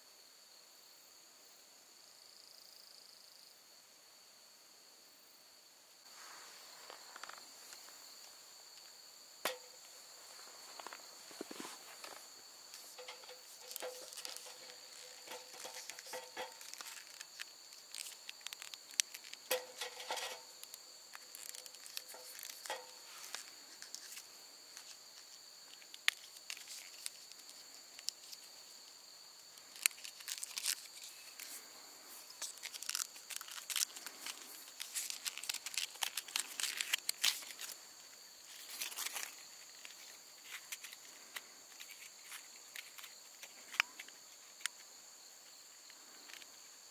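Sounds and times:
insects chirring: 0.0 - 46.9
gear crinkling and clicking: 10.7 - 28.5, 29.5 - 31.6, 32.2 - 37.8, 38.5 - 44.8.

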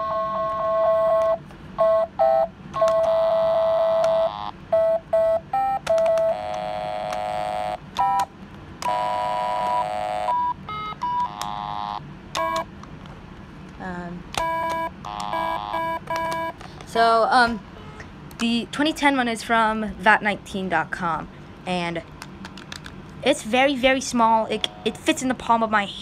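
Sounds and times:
electronic game beeps and tones: 0.0 - 8.2, 14.4 - 16.6
small clicks: 5.8 - 7.3.

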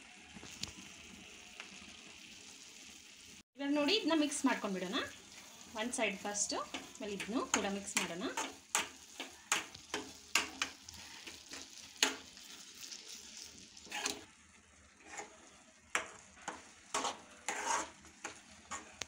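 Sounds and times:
metal spoon scraping steel pan: 13.8 - 14.3, 15.0 - 15.4, 16.0 - 19.0.

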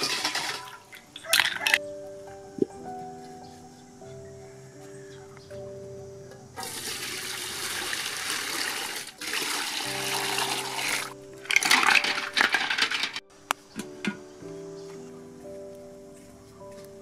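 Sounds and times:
water boiling in a pot: 0.0 - 1.5, 6.6 - 13.0
shells splashing into water: 0.0 - 1.8, 11.0 - 13.2
background music: 0.0 - 17.0.

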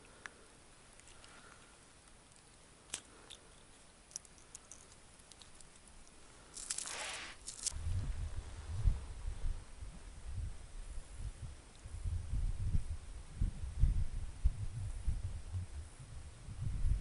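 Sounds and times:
light clicks and ticks: 0.0 - 6.8
rustle: 0.0 - 17.0.

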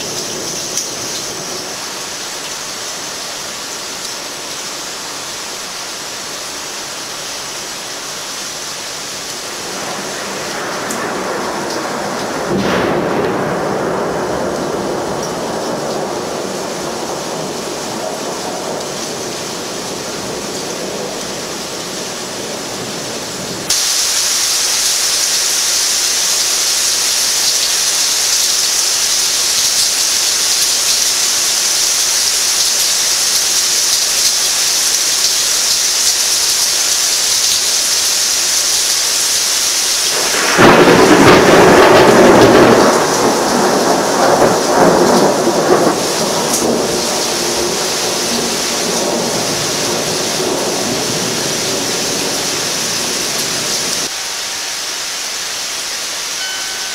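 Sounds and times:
heavy rain hissing: 0.0 - 56.9
thunder rumbling: 9.2 - 30.5, 40.0 - 54.1
loud thunderclap: 9.4 - 24.0, 40.1 - 54.1.

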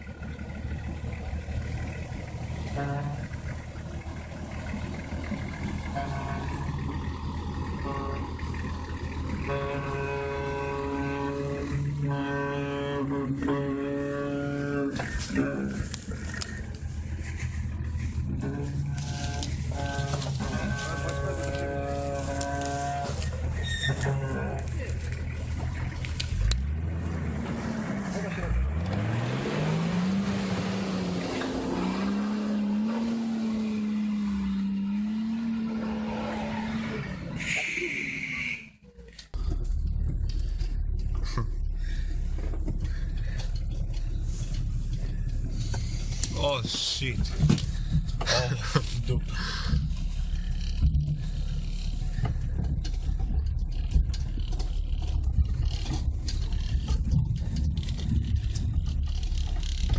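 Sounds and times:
diesel engine pulling: 0.0 - 59.9
knocks and rattles: 39.4 - 59.9.

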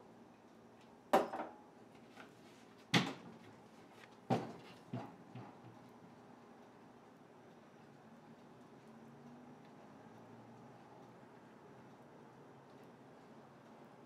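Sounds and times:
glass set down on counter: 1.2 - 1.6.

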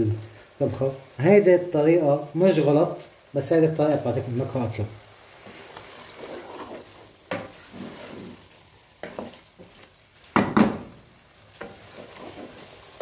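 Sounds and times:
faint frying sizzle: 0.0 - 13.0
wooden spoon scraping a pan: 5.3 - 10.0, 11.5 - 13.0.

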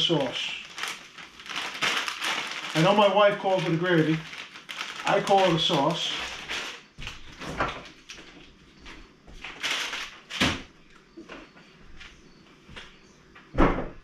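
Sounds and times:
rustling of items moved: 0.0 - 13.1
refrigerator door opening and shutting: 7.2 - 7.9, 10.4 - 10.8, 13.5 - 14.0.

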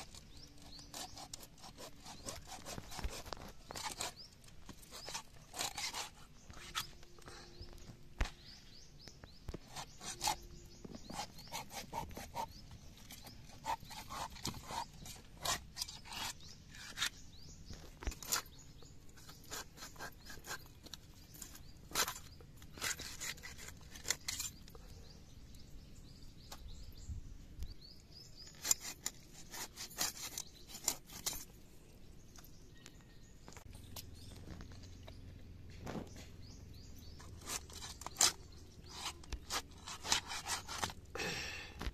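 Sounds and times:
knife scraping fish scales: 0.0 - 7.1, 9.6 - 17.4, 18.0 - 24.9, 28.4 - 31.6, 37.2 - 41.1.

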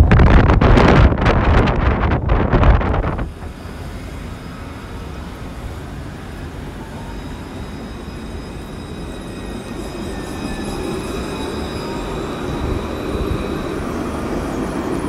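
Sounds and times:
tram rumbling on track: 0.0 - 15.0.

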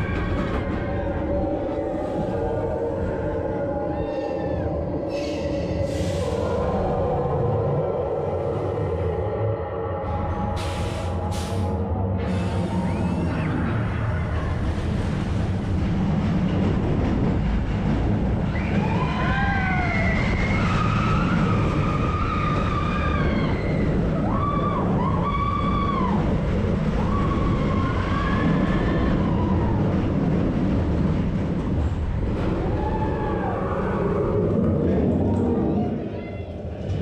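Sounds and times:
roller coaster rumbling on track: 0.0 - 37.0
riders screaming: 18.5 - 26.4, 27.0 - 29.9.

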